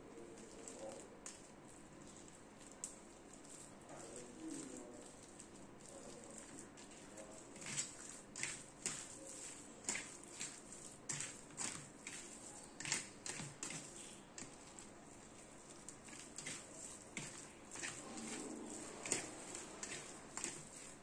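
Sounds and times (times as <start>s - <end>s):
soft squelches of mash: 0.0s - 21.0s.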